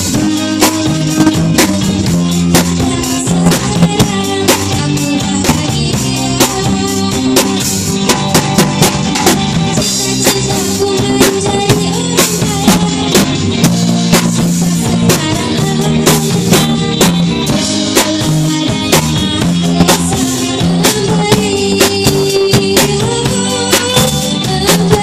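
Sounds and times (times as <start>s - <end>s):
drum kit beat: 0.0s - 25.0s
live rock band playing: 0.0s - 25.0s.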